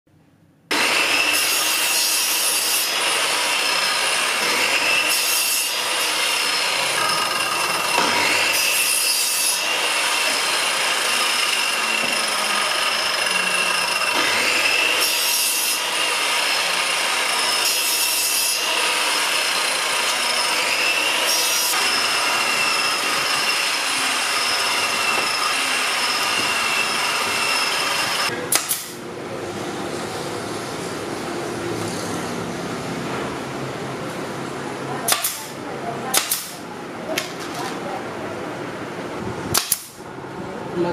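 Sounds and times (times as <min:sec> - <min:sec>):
miter saw whining: 0:00.7 - 0:29.0
saw cutting board: 0:00.7 - 0:29.0.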